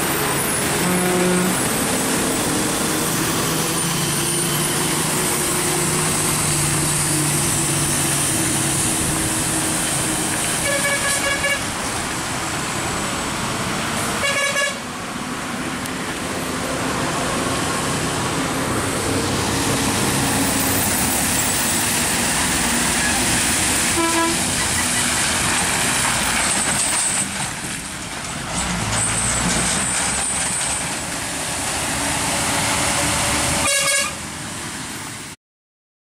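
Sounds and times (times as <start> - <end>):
truck engine labouring: 0.0 - 35.3
vehicle horn toots: 0.8 - 1.6, 10.6 - 11.6, 14.2 - 14.8, 23.9 - 24.5, 33.6 - 34.2.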